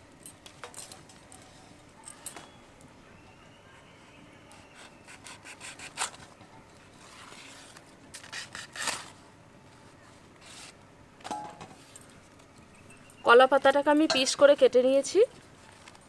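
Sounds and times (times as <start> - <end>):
knife cutting banana leaf: 4.6 - 6.2, 7.3 - 9.2.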